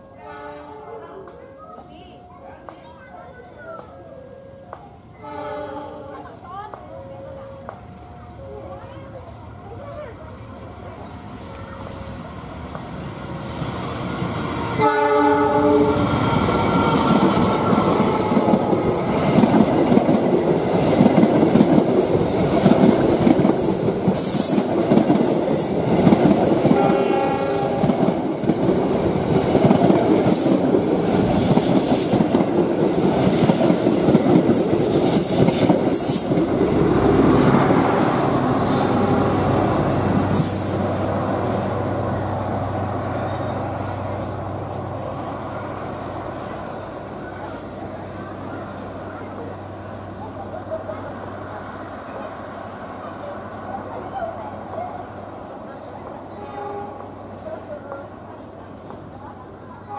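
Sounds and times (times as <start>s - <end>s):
train horn blast: 0.0s - 1.0s, 4.4s - 6.3s, 14.7s - 17.2s, 26.7s - 28.0s, 56.3s - 57.2s
train wheels clattering on rails: 16.0s - 41.3s.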